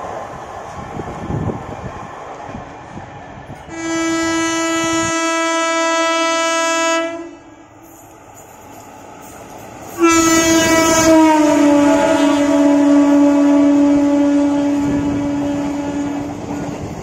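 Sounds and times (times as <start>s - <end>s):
low train rumble: 0.0s - 17.0s
locomotive air horn blast: 3.7s - 7.5s, 10.0s - 16.4s.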